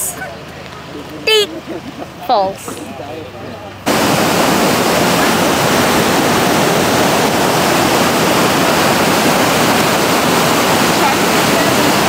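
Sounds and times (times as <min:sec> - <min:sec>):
whitewater rushing through gorge: 0:03.9 - 0:12.0.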